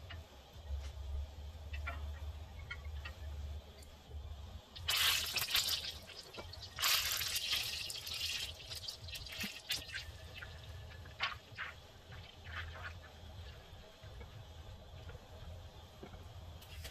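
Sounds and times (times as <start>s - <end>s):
liquid sizzling in hot butter: 4.8s - 13.6s.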